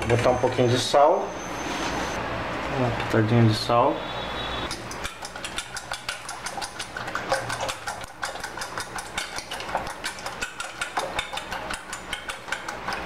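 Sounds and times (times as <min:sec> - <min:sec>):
fork beating eggs in metal bowl: 0:04.7 - 0:13.0.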